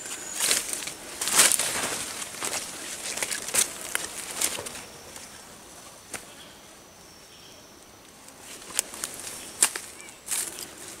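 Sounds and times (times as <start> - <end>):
leaf litter rustling and crackling: 0.0 - 6.3, 8.2 - 11.0
twigs snapping: 0.4 - 4.8, 8.3 - 10.7.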